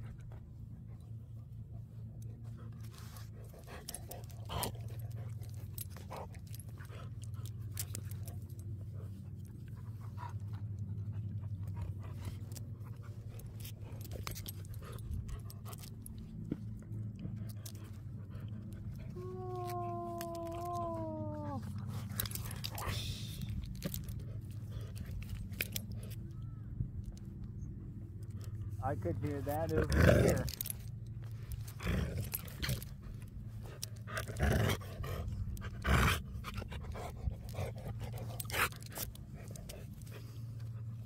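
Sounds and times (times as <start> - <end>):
steady low hum: 0.0 - 41.0
dog whining: 19.0 - 23.6.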